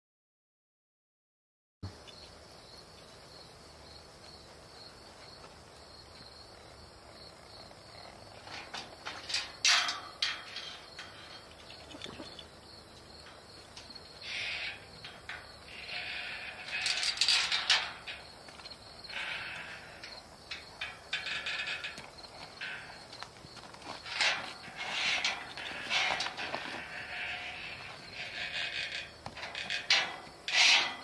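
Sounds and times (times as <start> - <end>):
insects droning: 1.8 - 31.0
metal gate clanking and rattling: 7.7 - 31.0.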